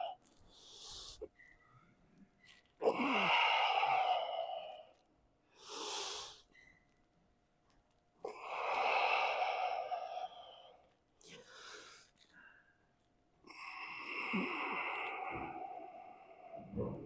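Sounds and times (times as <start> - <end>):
man breathing hard: 2.8 - 6.5, 8.2 - 12.7, 13.5 - 17.0.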